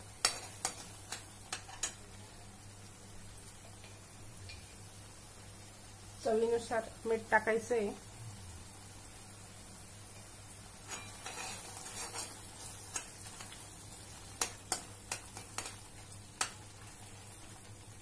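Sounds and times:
gravy sizzling: 0.0s - 18.0s
spoon scraping a pan: 0.2s - 2.0s, 10.2s - 13.6s.

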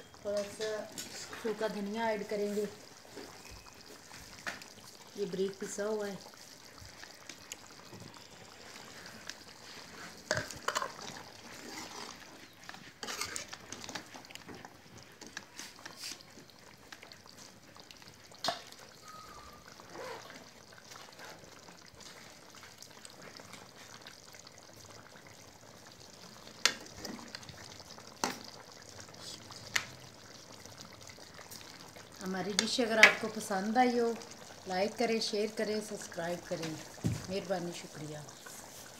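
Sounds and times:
curry simmering and bubbling: 0.0s - 38.9s
ladle scraping pan: 9.7s - 14.1s.

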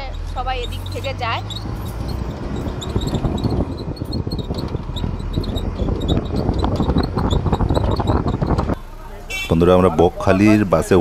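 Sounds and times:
bus engine and road rumble: 0.0s - 11.0s
wind buffeting microphone: 0.1s - 8.8s.

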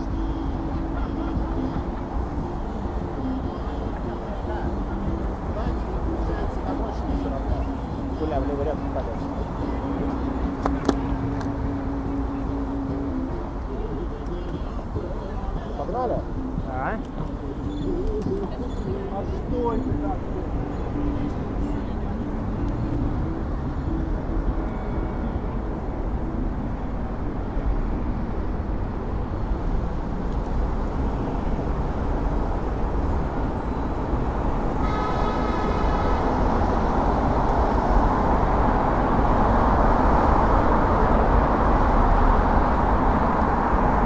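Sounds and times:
city traffic noise: 0.0s - 44.0s
car horn: 34.5s - 37.7s.

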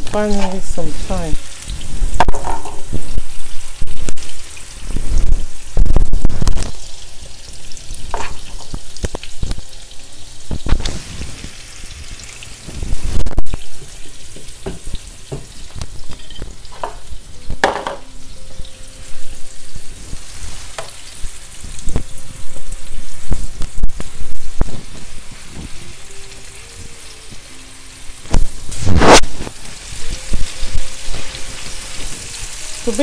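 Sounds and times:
meat sizzling in a frying pan: 0.0s - 33.0s
utensil knocking and scraping pan: 2.2s - 3.1s, 13.8s - 18.1s
pan clatter: 2.2s - 3.2s, 8.1s - 8.8s, 16.1s - 18.1s.

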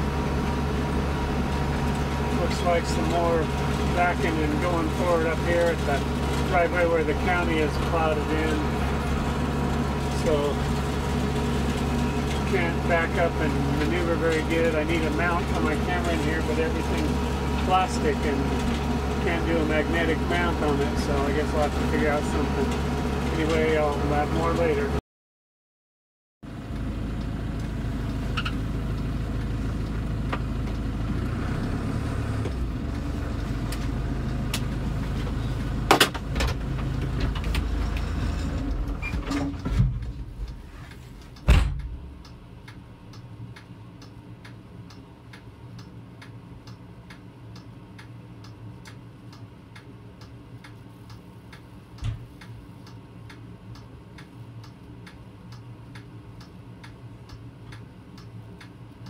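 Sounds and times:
snowblower running: 0.0s - 25.0s, 26.5s - 39.0s
tractor diesel engine: 0.0s - 25.0s, 26.5s - 42.4s
steady regular ticking: 41.2s - 59.0s
sharp clunks: 41.4s - 42.2s.

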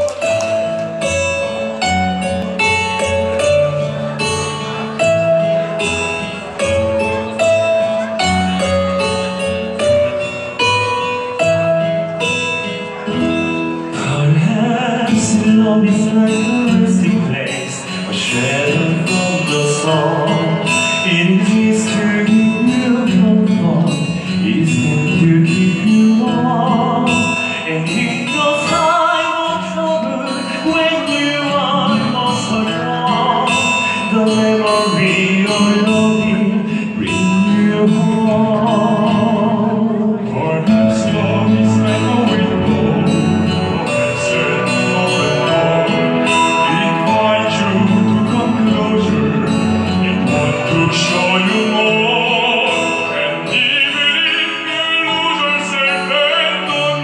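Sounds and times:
instrumental accompaniment with guitar: 0.0s - 57.0s
two men singing a duet: 13.9s - 57.0s.

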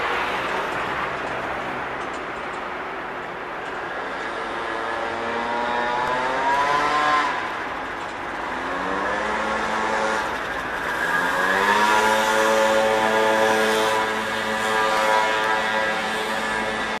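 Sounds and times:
engine accelerating: 4.3s - 7.8s, 8.4s - 17.0s.

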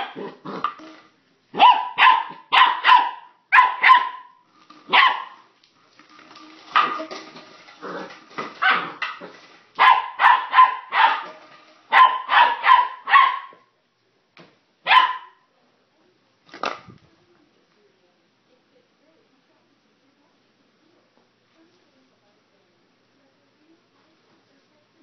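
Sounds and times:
puppy barking: 0.0s - 0.7s, 1.6s - 5.4s, 8.6s - 9.0s, 9.8s - 11.3s, 11.9s - 13.6s, 14.8s - 15.4s.

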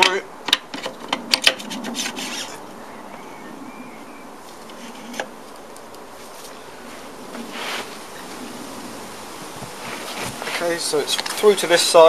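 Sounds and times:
metal axle scraping through hub: 0.8s - 2.6s.

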